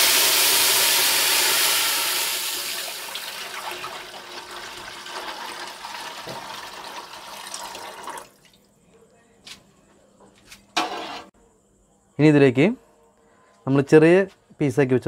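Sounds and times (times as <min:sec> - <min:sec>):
steam hissing from hot fat: 0:00.0 - 0:03.3
water pouring into pot: 0:00.0 - 0:08.6.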